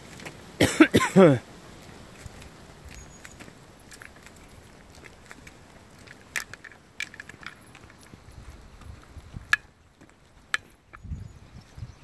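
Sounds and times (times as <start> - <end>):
dog lead clicks and jingles: 2.2 - 11.1.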